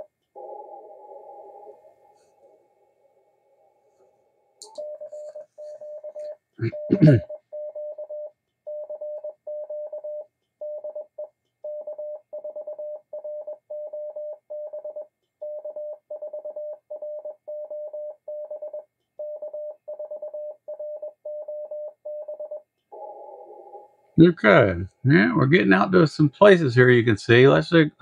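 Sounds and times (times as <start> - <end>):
morse code tone: 4.6 - 23.8.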